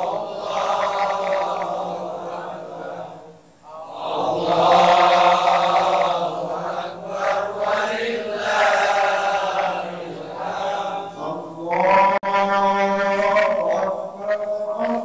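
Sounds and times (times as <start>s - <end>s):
person chanting melodically: 0.0s - 15.0s.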